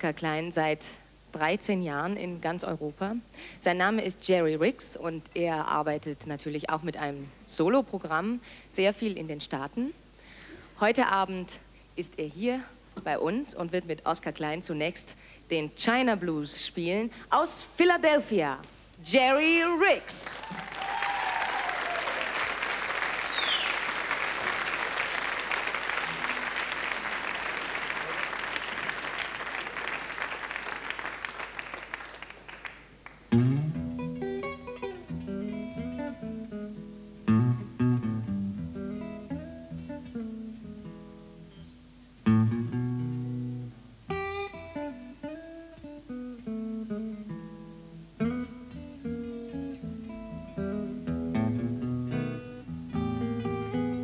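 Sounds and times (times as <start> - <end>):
audience applause: 20.4 - 33.3
acoustic blues guitar: 33.3 - 54.0.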